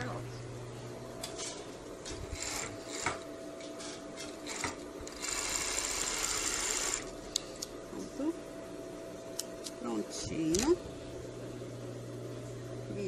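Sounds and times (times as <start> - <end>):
overlock sewing machine running: 2.3 - 3.2, 4.4 - 7.1.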